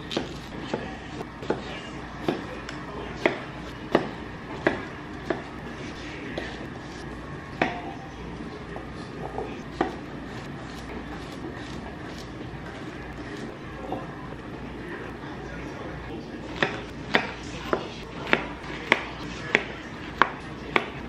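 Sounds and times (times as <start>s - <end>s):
knife chopping on wooden board: 0.1s - 2.5s, 3.2s - 5.5s, 9.7s - 10.0s, 16.6s - 21.0s.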